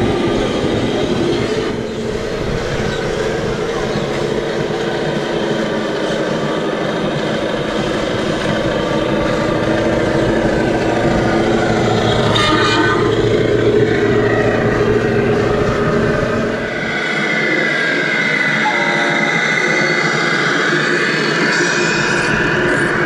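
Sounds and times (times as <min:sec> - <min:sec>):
toy truck diesel engine sound: 0:00.0 - 0:23.0
horn toot: 0:12.1 - 0:13.4.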